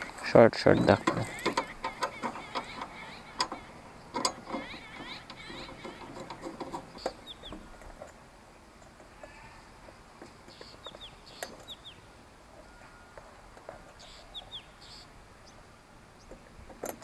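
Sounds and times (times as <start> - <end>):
bird chirps: 0.6 - 8.0, 10.4 - 15.6
metal clips clicking and rattling: 0.9 - 8.2.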